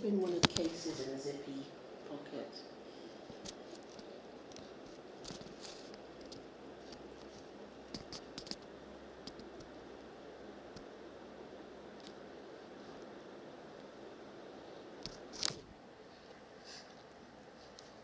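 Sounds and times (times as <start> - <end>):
faint clicks and rustles: 0.1 - 1.4, 3.0 - 9.8, 14.8 - 18.0.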